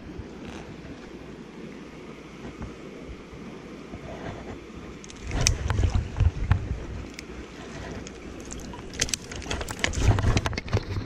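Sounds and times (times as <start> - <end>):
wind thumps on microphone: 2.3 - 11.0
water splashing around net: 5.0 - 6.4, 7.0 - 11.0.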